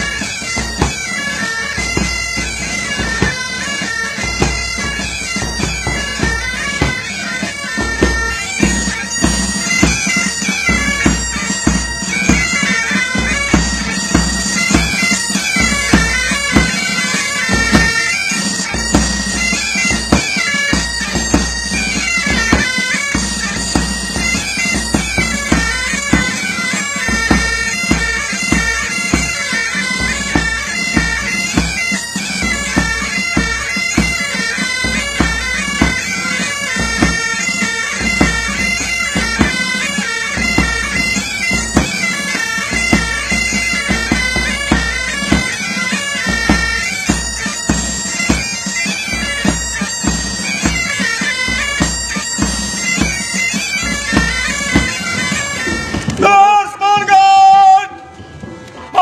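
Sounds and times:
bagpipes playing melody with drone: 0.0s - 59.0s
drumbeats: 0.0s - 59.0s.

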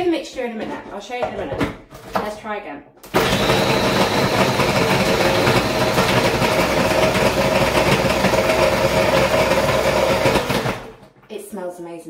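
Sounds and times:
blender running with ice: 3.1s - 11.0s.

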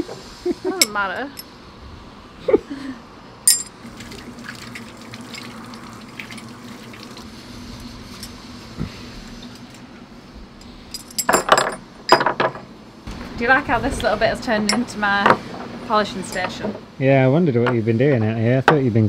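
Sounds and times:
loud clinks and knocks: 3.5s - 3.8s, 10.9s - 12.7s, 16.3s - 16.7s
water rushing from tap: 3.8s - 7.3s.

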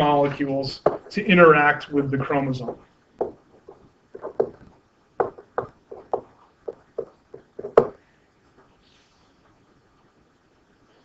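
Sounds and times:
stylus tapping on tablet: 0.8s - 1.1s, 2.6s - 8.0s.

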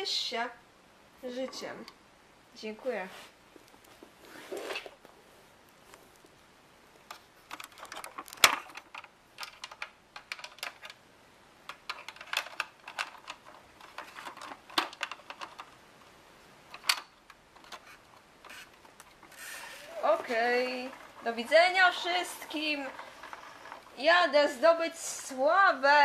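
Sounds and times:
toys clicking on wooden floor: 16.7s - 25.1s.

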